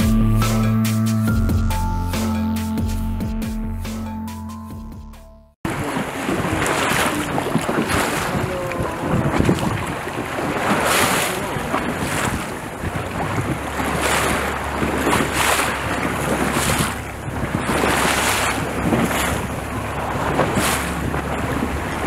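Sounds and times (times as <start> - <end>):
boat engine hum: 0.0 - 4.6, 5.7 - 22.0
water rushing and splashing: 5.6 - 22.0
wind buffeting microphone: 5.7 - 22.0.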